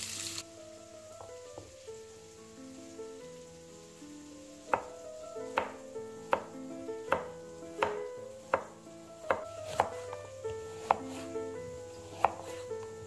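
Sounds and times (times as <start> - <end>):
soft background music: 0.1 - 13.0
knife chopping on wooden board: 4.7 - 11.4, 12.0 - 13.0.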